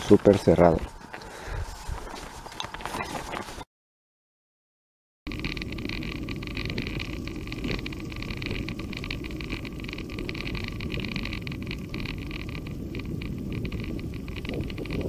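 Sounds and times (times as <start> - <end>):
tyres crackling on gravel: 0.0 - 3.6, 5.3 - 15.0
wind on microphone: 0.8 - 3.6, 5.3 - 15.0
low rumble: 5.3 - 15.0.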